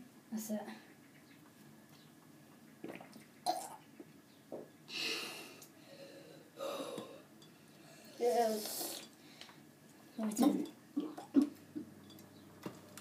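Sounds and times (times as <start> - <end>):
boy's harsh breathy gasps: 4.9 - 7.2.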